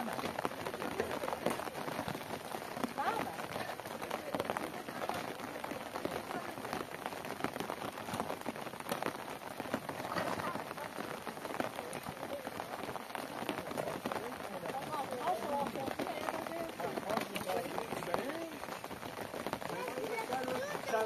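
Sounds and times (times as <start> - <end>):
steady rain with raindrop patter: 0.0 - 21.0.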